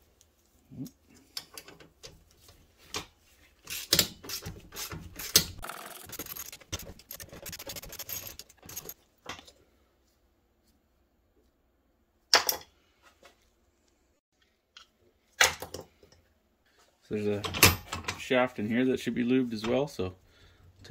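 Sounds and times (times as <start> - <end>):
wrench and metal parts clinking: 5.9 - 9.0.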